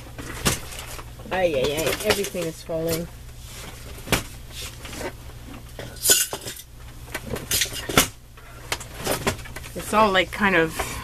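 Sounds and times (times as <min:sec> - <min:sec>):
rustling scrape: 0:03.4 - 0:05.2.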